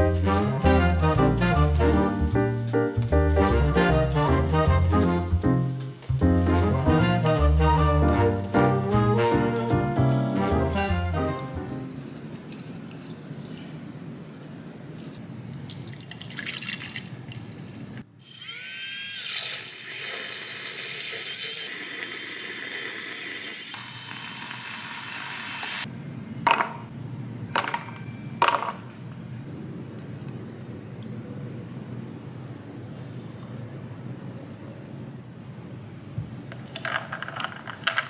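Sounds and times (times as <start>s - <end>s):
electric milk frother whirring: 18.2s - 25.9s.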